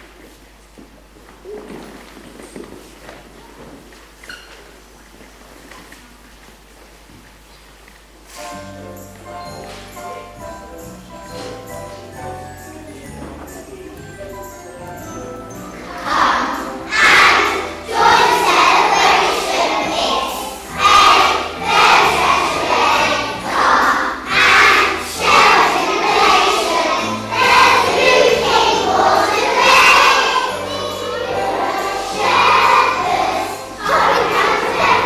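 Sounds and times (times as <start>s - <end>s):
instrumental accompaniment with bass: 8.4s - 35.0s
children singing: 15.0s - 35.0s.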